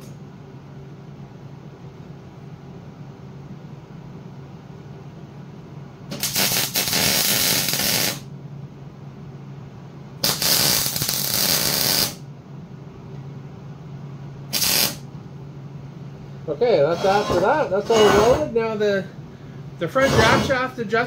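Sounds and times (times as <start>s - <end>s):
welder arcing: 6.1s - 8.3s, 10.2s - 12.2s, 14.5s - 15.1s.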